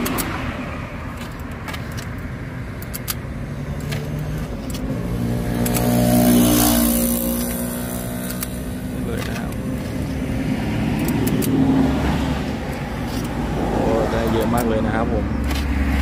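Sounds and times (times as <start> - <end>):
traffic rumble: 0.0 - 16.0
vehicle passing close by: 4.0 - 16.0.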